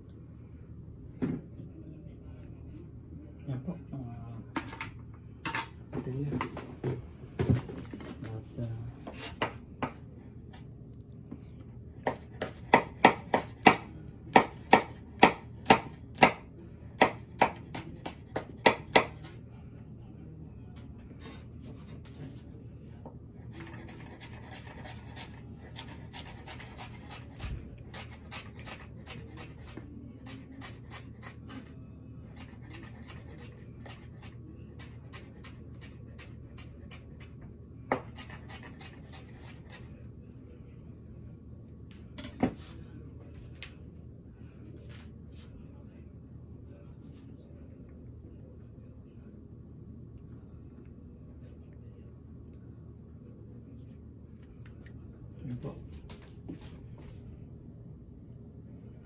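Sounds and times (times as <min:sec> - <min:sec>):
knife chopping on cutting board: 0:12.0 - 0:19.3.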